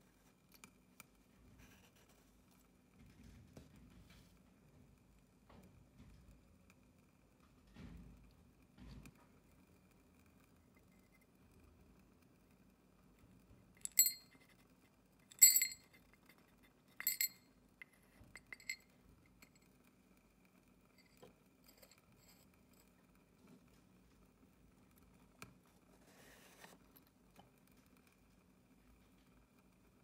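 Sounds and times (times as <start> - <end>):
popcorn kernels clinking in metal cup: 13.8 - 14.4, 15.3 - 16.0, 17.0 - 17.4.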